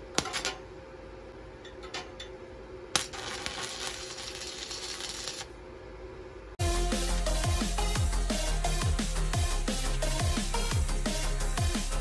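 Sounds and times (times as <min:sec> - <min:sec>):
welding arc crackling and sizzling: 0:02.9 - 0:05.6.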